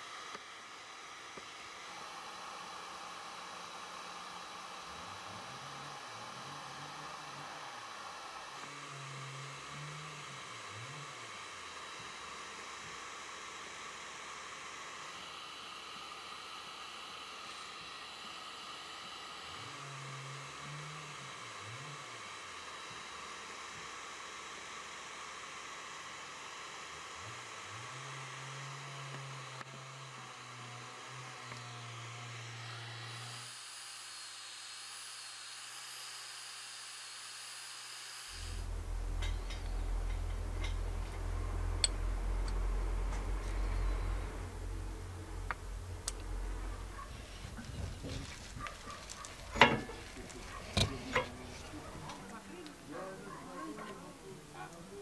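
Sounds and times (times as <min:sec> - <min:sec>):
steady hiss: 0:00.0 - 0:29.8, 0:31.6 - 0:53.0
electric disc sander whining: 0:00.0 - 0:55.0
faint low wavering tone: 0:38.4 - 0:48.2
low rumble: 0:38.5 - 0:50.5.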